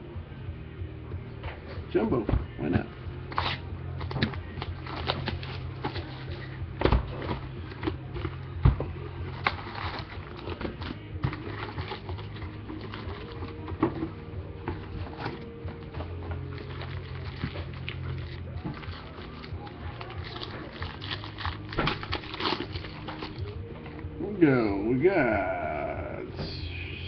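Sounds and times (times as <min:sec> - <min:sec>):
foil packs crinkling: 0:03.3 - 0:06.6, 0:09.2 - 0:13.8, 0:16.1 - 0:23.6.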